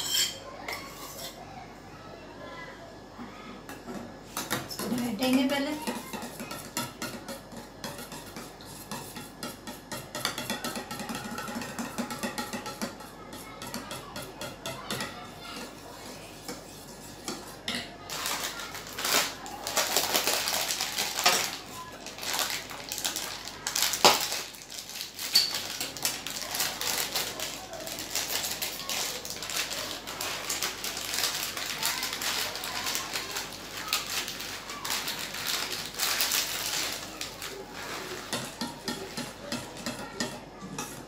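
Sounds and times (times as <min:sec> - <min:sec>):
utensils clattering: 0:00.0 - 0:01.4, 0:16.9 - 0:41.0
spoon stirring in bowl: 0:04.3 - 0:24.6, 0:25.2 - 0:28.8, 0:35.0 - 0:41.0
aluminium foil crinkling: 0:18.0 - 0:38.4.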